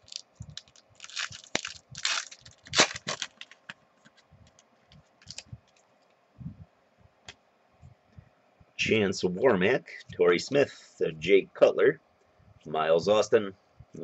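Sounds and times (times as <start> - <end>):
foil wrapper tearing and crinkling: 0.0 - 3.7, 5.2 - 5.4
cards ticking and rustling: 0.0 - 5.8.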